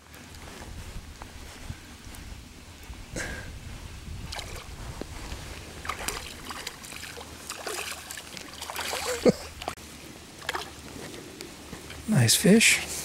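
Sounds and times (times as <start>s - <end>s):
water sloshing: 4.2s - 11.2s
fish splashing at water surface: 5.8s - 9.8s, 10.4s - 10.8s.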